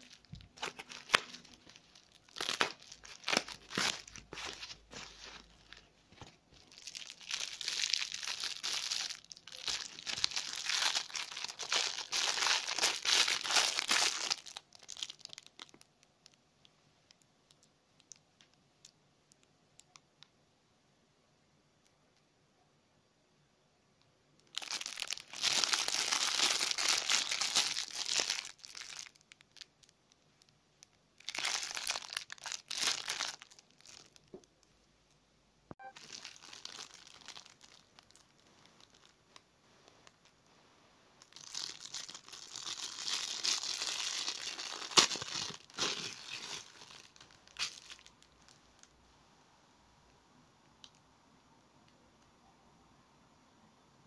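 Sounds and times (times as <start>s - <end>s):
plastic bag crinkling: 0.0s - 16.4s, 24.4s - 30.0s, 31.2s - 34.6s, 35.8s - 39.3s, 41.2s - 48.9s.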